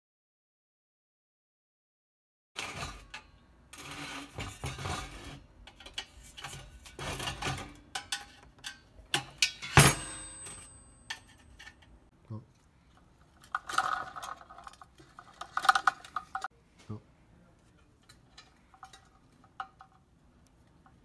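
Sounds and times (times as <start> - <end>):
screwdriver and metal parts rattling: 2.6 - 16.5, 17.6 - 20.1
loud metallic clank: 9.2 - 11.5.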